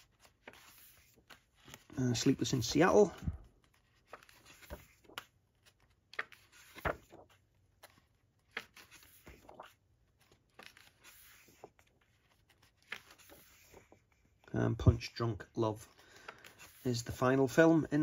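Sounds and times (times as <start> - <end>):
paper pages rustling: 0.0 - 18.0
paper flicks: 6.1 - 7.4.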